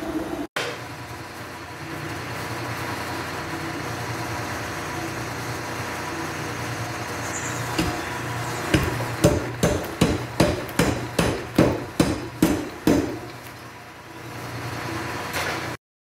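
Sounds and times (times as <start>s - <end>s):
machine drive humming: 0.0s - 15.3s
power hammer blows on hot iron: 7.1s - 13.4s.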